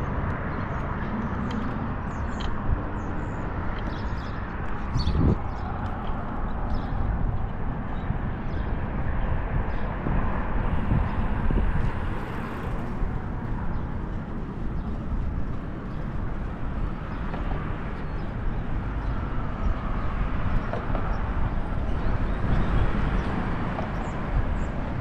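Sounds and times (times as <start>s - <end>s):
wind buffeting microphone: 0.0s - 25.0s
bicycle tyre rumble: 0.1s - 25.0s.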